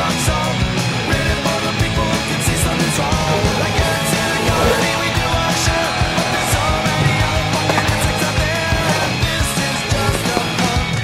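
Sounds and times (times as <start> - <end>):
rock music: 0.0 - 11.0
fast drum beat: 0.4 - 11.0.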